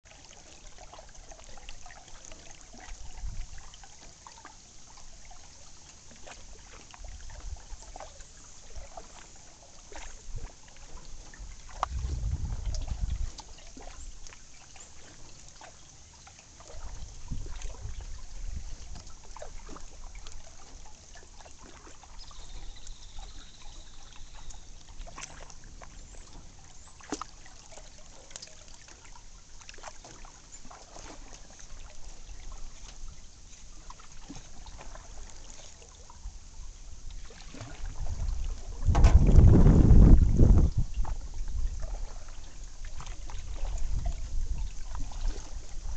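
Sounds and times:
paddle splashing in water: 0:00.0 - 0:45.9
water dripping off paddle: 0:00.1 - 0:45.9.

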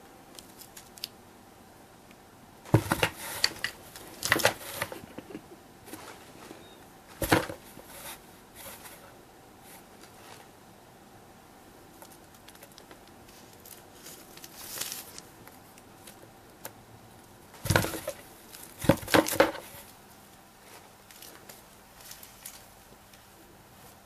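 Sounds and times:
rustling against cardboard box: 0:02.7 - 0:05.1, 0:17.6 - 0:20.0.

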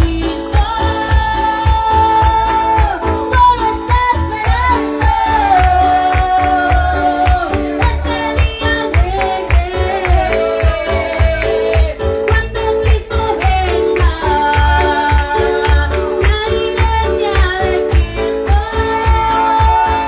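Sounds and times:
keyboard: 0:00.0 - 0:20.0
man singing: 0:05.0 - 0:12.2.

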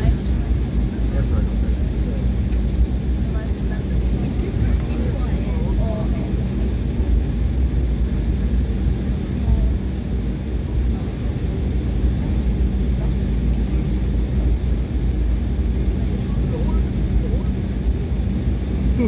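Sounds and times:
vehicle cabin rumble and hum: 0:00.0 - 0:19.0.

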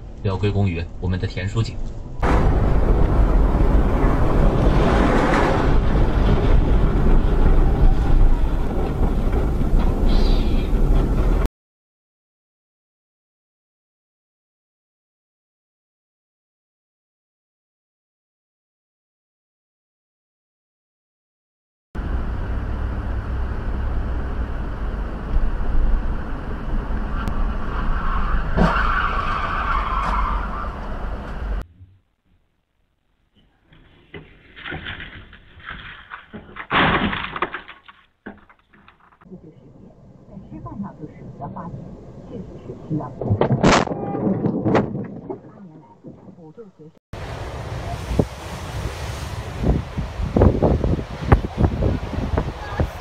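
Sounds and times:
vehicle engine and tyres rumbling: 0:00.0 - 0:11.5, 0:22.0 - 0:32.2, 0:33.4 - 0:53.0
wind noise: 0:01.7 - 0:11.5, 0:39.2 - 0:53.0
tyres skidding screech: 0:03.8 - 0:11.5, 0:26.9 - 0:31.6.

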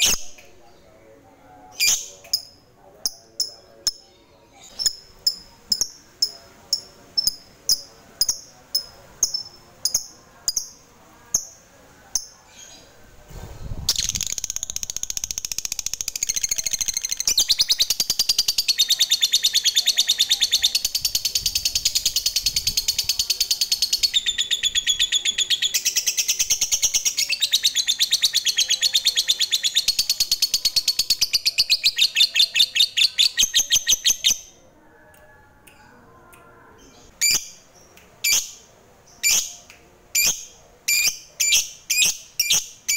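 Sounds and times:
lovebird chirping and trilling: 0:37.1 - 0:37.6.

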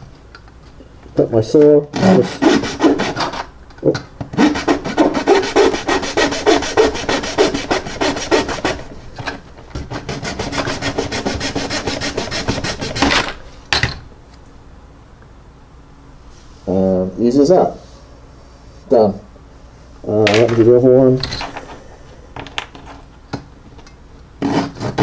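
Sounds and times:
razor saw rasping through resin: 0:02.0 - 0:03.5, 0:04.4 - 0:08.9, 0:10.0 - 0:13.1, 0:24.4 - 0:25.0.

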